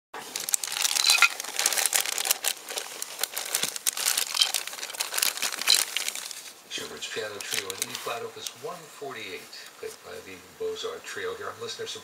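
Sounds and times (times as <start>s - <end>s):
plastic bag crinkling: 0.2s - 8.5s.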